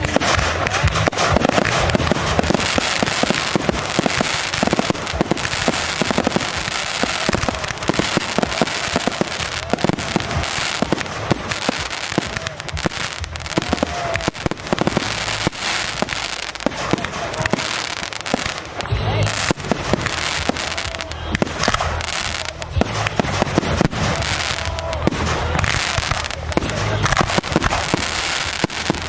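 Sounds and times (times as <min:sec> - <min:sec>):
fireworks bangs and crackling: 0:00.0 - 0:29.0.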